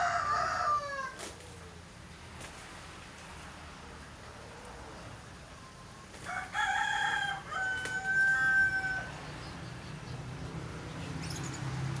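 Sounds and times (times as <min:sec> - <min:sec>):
rooster crowing: 0:00.0 - 0:01.2, 0:06.2 - 0:09.3.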